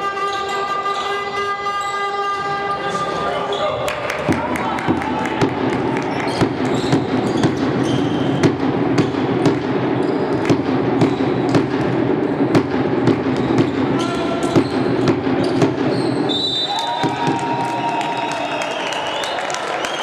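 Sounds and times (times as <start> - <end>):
sneaker squeaks: 0.0 - 4.0, 6.0 - 17.3
basketball bouncing on hardwood: 4.3 - 16.2.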